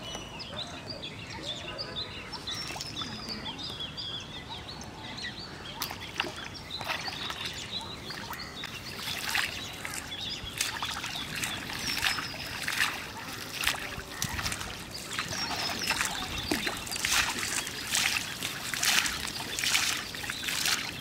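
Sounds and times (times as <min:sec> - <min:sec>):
small birds chirping: 0:00.0 - 0:21.0
water splashing: 0:05.8 - 0:21.0.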